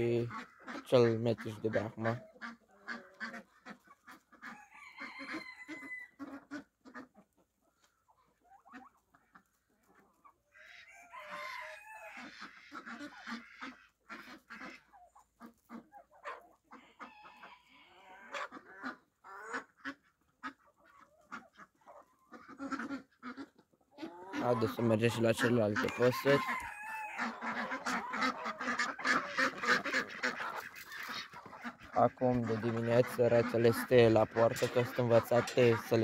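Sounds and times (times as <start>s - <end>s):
chickens clucking: 0.0s - 36.0s
rooster crowing: 4.6s - 6.2s, 11.0s - 12.3s, 25.8s - 27.4s.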